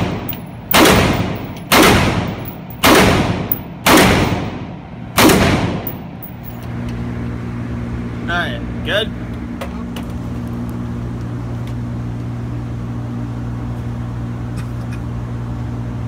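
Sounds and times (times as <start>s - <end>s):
rifle shots indoors: 0.0s - 6.0s
steady low hum: 0.0s - 16.0s.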